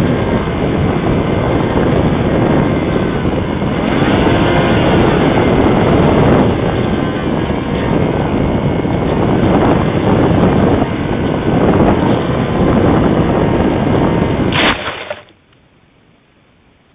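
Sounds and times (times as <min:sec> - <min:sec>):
wind buffeting microphone: 0:00.0 - 0:15.3
faint steady whine: 0:00.0 - 0:16.9
loud rustle: 0:14.5 - 0:15.4.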